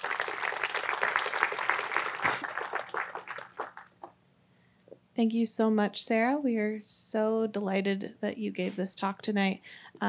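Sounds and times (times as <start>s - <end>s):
audience applauding: 0.0s - 4.1s.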